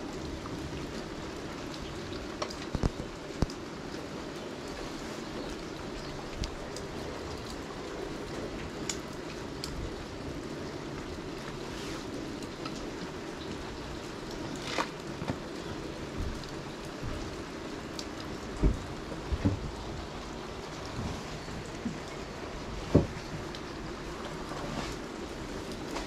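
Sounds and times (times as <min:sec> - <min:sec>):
steady rain: 0:00.0 - 0:26.0
drips ticking: 0:00.1 - 0:11.6, 0:12.3 - 0:24.1.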